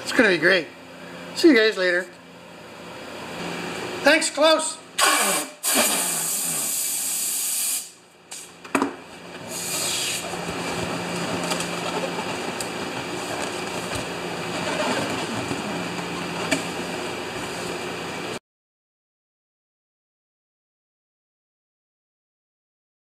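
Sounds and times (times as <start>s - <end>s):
mechanical whir with low hum: 0.0s - 6.8s, 7.8s - 18.4s
gas hissing into balloon: 5.0s - 8.4s, 9.5s - 10.3s.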